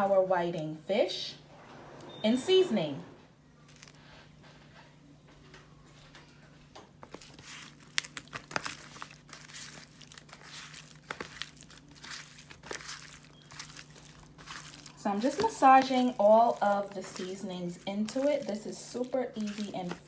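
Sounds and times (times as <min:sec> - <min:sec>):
hands rubbing seasoning into fish: 0:08.7 - 0:20.0.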